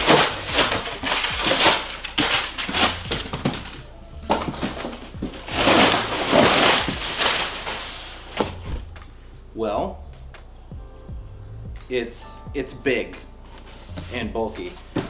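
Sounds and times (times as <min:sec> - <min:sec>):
cardboard box being torn open: 0:00.0 - 0:03.8, 0:04.4 - 0:08.8.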